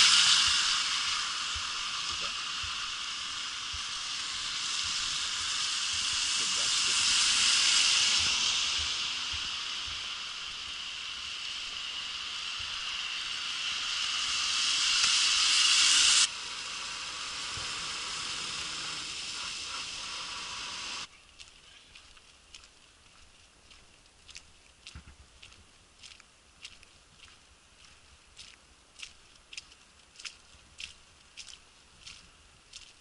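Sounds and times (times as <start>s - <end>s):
tyres hissing on wet road: 0.0s - 21.1s
falling sleet and rain: 0.0s - 25.0s.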